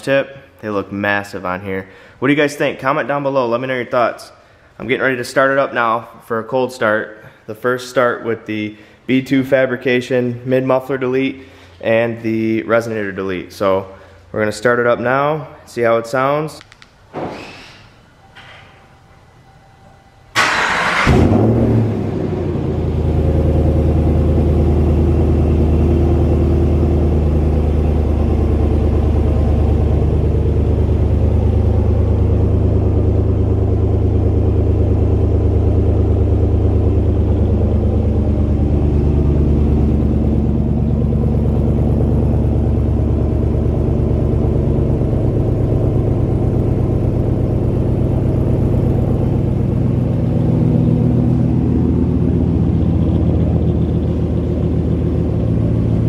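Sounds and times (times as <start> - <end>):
engine idling with deep exhaust: 21.2 - 56.0.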